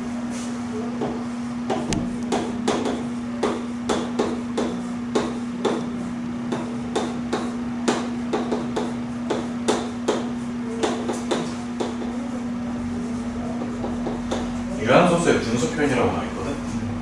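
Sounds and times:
steady low hum: 0:00.0 - 0:17.0
chalk tapping on chalkboard: 0:01.0 - 0:05.9, 0:06.5 - 0:12.2, 0:13.5 - 0:14.6.

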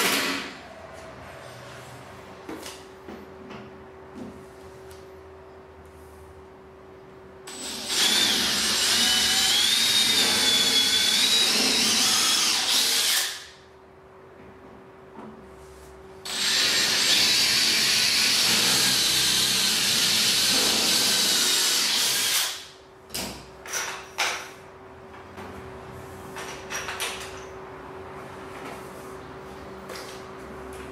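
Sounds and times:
cordless drill boring: 0:07.5 - 0:13.6, 0:16.3 - 0:22.7.

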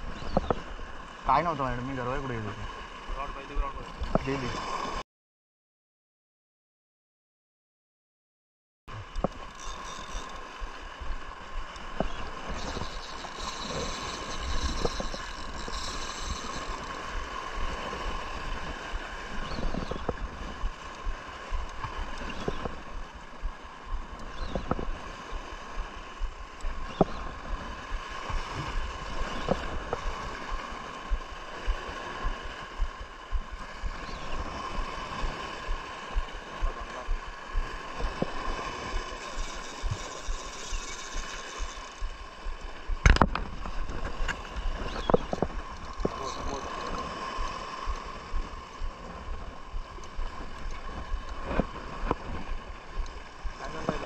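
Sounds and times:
wind rumble on microphone: 0:00.0 - 0:05.0, 0:08.9 - 0:54.0
fishing reel whirring and clicking: 0:09.0 - 0:54.0.

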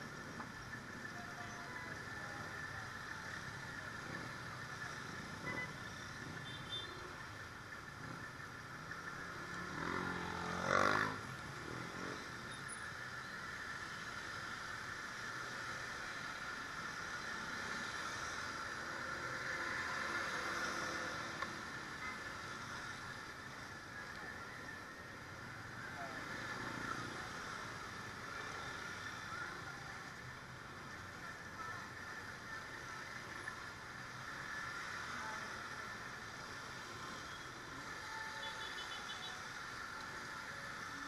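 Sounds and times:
motorcycle road noise in rain: 0:08.1 - 0:12.8.

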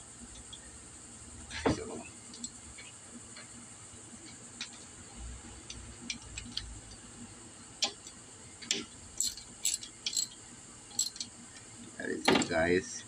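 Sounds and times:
socket wrench clicking: 0:07.8 - 0:11.3.

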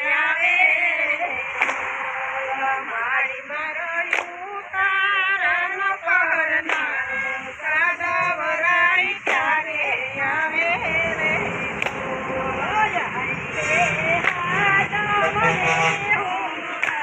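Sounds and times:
voices singing folk song: 0:00.0 - 0:17.0
sharp hand clap: 0:01.3 - 0:03.0, 0:04.0 - 0:07.3, 0:09.0 - 0:09.8, 0:11.7 - 0:12.2, 0:14.1 - 0:15.5, 0:16.2 - 0:17.0.

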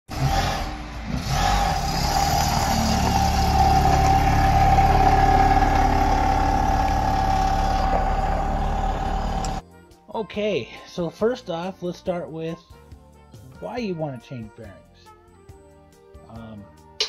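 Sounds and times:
car engine driving away: 0:00.1 - 0:09.6.

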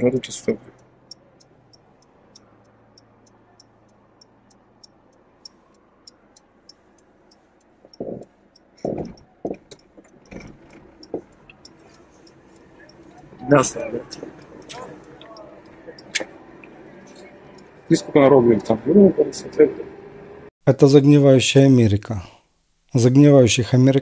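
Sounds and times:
turn signal relay clicking: 0:00.0 - 0:17.8.

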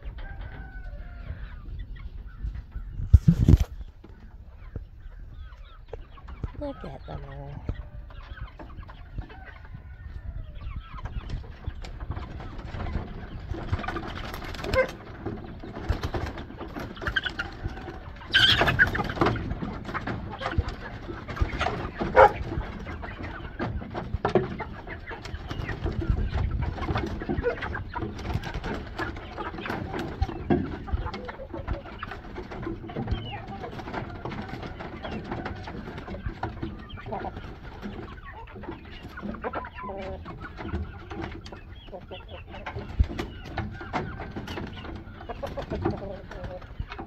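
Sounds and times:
young chickens clucking: 0:00.0 - 0:47.0
wings flapping: 0:12.0 - 0:38.2.

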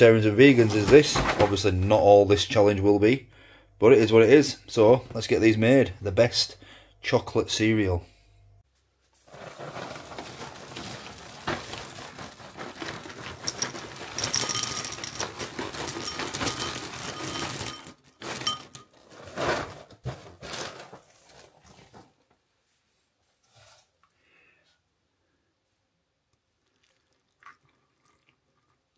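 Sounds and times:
rustling: 0:08.7 - 0:24.1
cereal pouring into bowl: 0:09.3 - 0:18.7.

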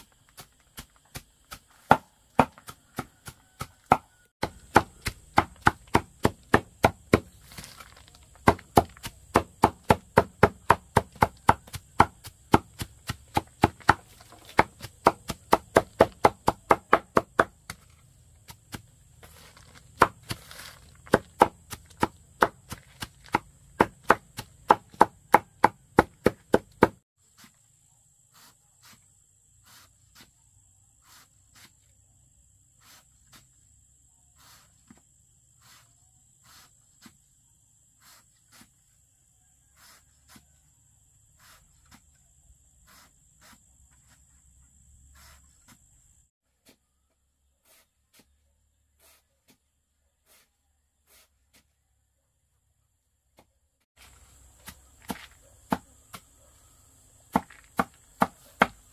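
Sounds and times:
rapid chopping strikes: 0:00.0 - 0:07.8, 0:08.4 - 0:27.0, 0:54.6 - 0:56.3, 0:57.3 - 0:58.9.

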